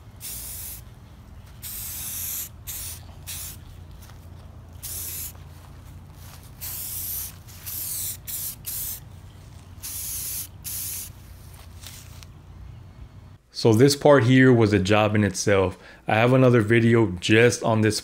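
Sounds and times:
aerosol spray can hissing: 0:00.2 - 0:00.8, 0:01.6 - 0:03.6, 0:04.8 - 0:05.4, 0:06.6 - 0:09.0, 0:09.8 - 0:11.2.

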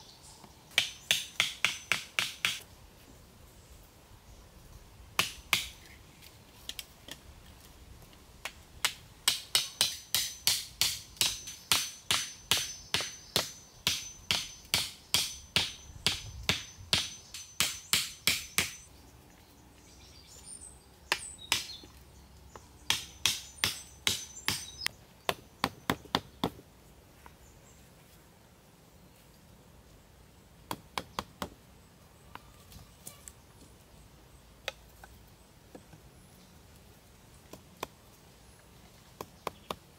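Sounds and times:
hatchet striking stakes: 0:00.7 - 0:02.6, 0:05.2 - 0:05.8, 0:08.4 - 0:18.9, 0:22.9 - 0:26.6.

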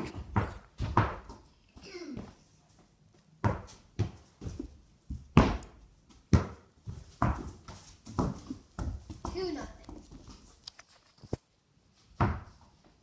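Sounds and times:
ball bouncing on plywood floor: 0:00.0 - 0:01.5, 0:03.4 - 0:10.5, 0:12.2 - 0:12.6.

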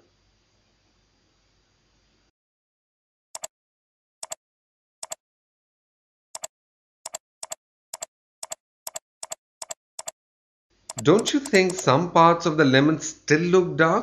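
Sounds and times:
computer mouse button clicking: 0:10.9 - 0:11.9.

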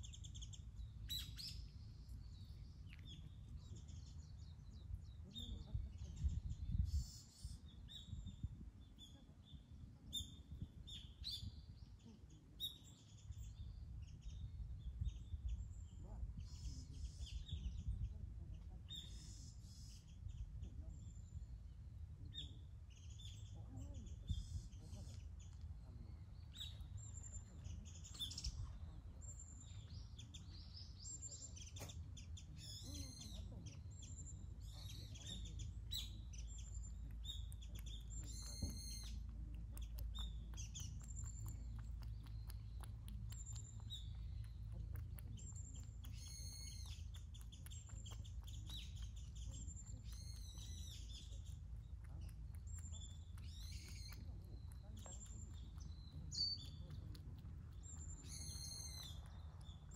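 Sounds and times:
steady low rumble: 0:00.0 - 0:12.0, 0:33.5 - 0:59.9
small birds chirping: 0:00.0 - 0:59.9.

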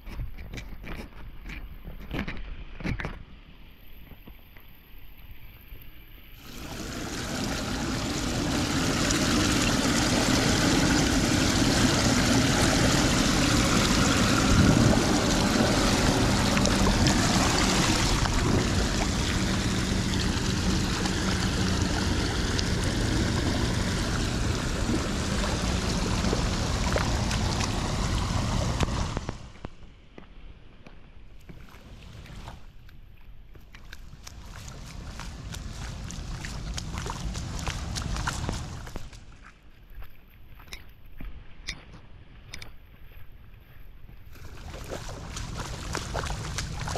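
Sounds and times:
floodwater rushing through drain grate: 0:06.4 - 0:29.5, 0:31.5 - 0:32.7, 0:33.7 - 0:39.2, 0:44.4 - 0:46.9.

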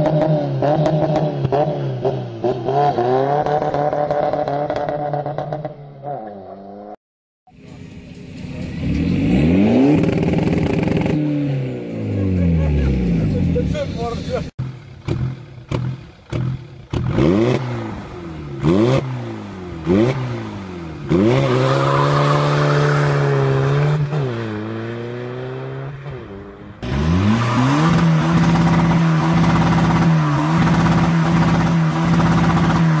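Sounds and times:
diesel engine revving: 0:07.6 - 0:33.0.

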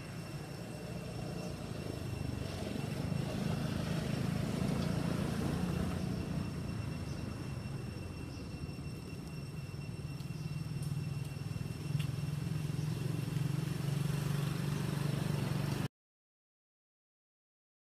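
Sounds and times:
motor vehicle passing: 0:00.0 - 0:08.6, 0:10.4 - 0:15.9
road traffic rumble: 0:00.0 - 0:15.9.

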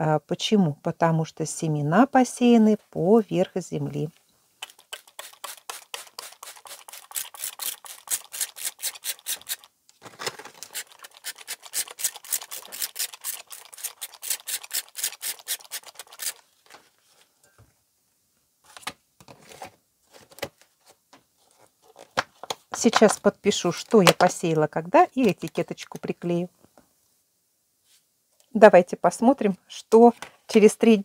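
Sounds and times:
spray bottle misting: 0:04.9 - 0:09.6.

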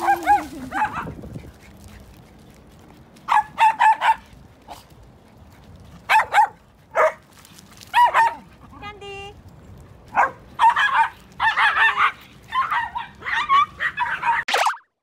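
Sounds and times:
dogs yipping: 0:00.0 - 0:01.6, 0:03.3 - 0:04.8, 0:06.0 - 0:07.2, 0:10.1 - 0:14.7.

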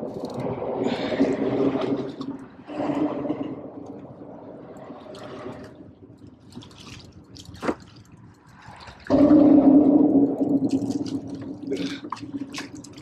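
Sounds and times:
fish splashing in water: 0:06.4 - 0:13.0.

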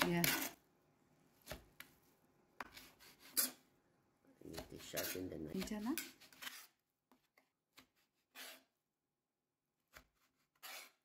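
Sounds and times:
knife cutting on plastic board: 0:01.4 - 0:03.6, 0:04.4 - 0:08.8, 0:09.8 - 0:11.0.

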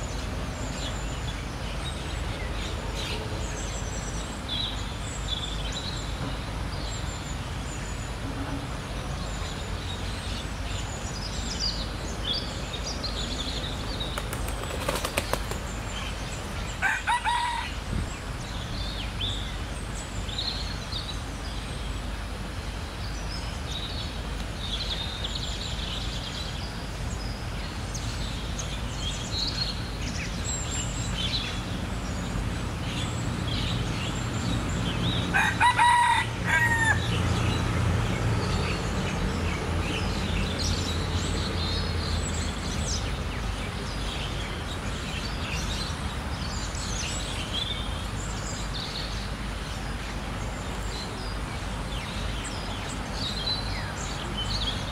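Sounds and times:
small birds chirping: 0:09.1 - 0:35.3.

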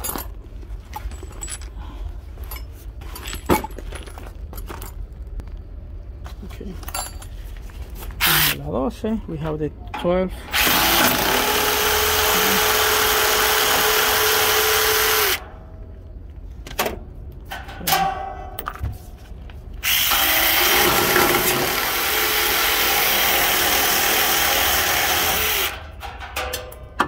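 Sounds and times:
power ratchet motor whine: 0:10.5 - 0:15.4, 0:19.8 - 0:25.8.

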